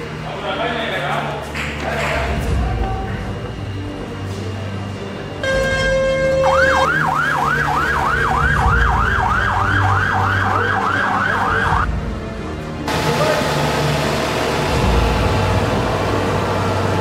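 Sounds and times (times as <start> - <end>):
fire engine siren yelping: 5.4 - 11.9.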